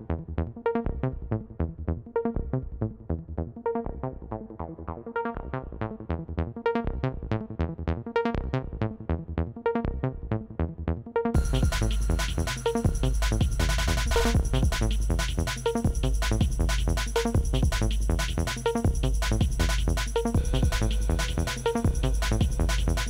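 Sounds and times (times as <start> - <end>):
plucked synth electronic music: 11.3 - 23.0.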